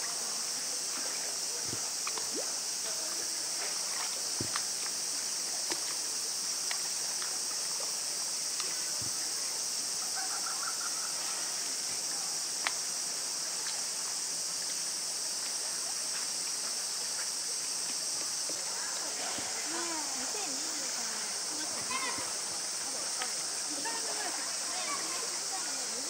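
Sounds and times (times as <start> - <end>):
high-pitched outdoor hiss: 0.0 - 26.0
faint call-like sound: 10.0 - 11.5
faint clicks: 12.6 - 12.8.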